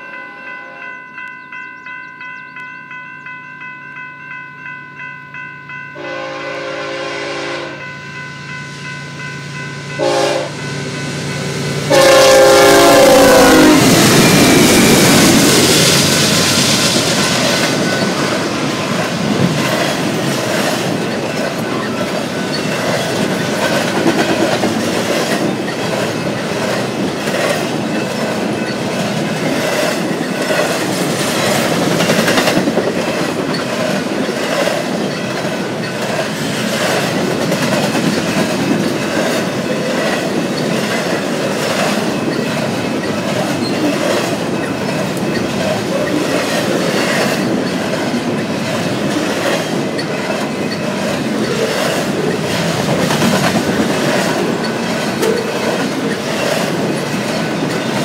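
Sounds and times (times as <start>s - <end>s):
crossing bell ringing: 0.0s - 58.0s
train wheel and rail clatter: 0.0s - 58.0s
locomotive horn blasts: 6.0s - 7.9s, 9.9s - 10.7s, 11.9s - 14.3s.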